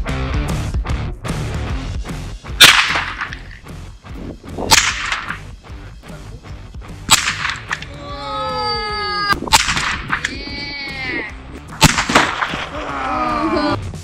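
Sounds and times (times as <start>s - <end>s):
rifle shots: 2.6s - 3.6s, 4.7s - 5.5s, 7.1s - 7.9s, 9.5s - 10.4s, 11.7s - 12.8s.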